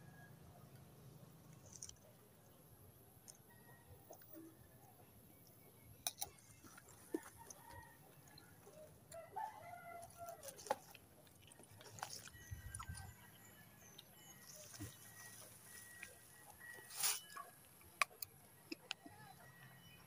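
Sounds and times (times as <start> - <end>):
rooster crowing: 9.1 - 10.6.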